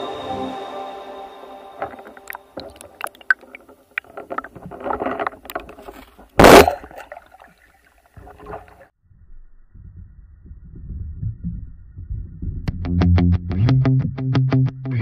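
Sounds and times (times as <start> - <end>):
underwater clicks and crackling: 1.8 - 8.9
low rumbling: 9.0 - 13.6.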